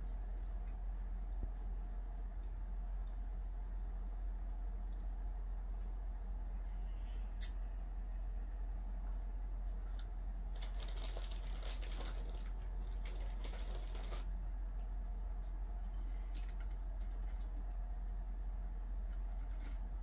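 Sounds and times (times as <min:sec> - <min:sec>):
steady low hum: 0:00.0 - 0:20.0
cards crinkling and clicking: 0:10.6 - 0:14.3.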